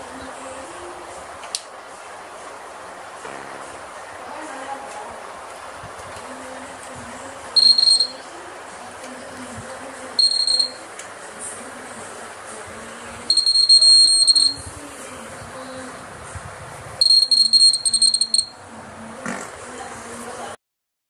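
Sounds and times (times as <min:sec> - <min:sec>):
high buzzer beeps: 0:07.6 - 0:08.2, 0:10.2 - 0:10.8, 0:13.3 - 0:14.7, 0:17.0 - 0:18.5.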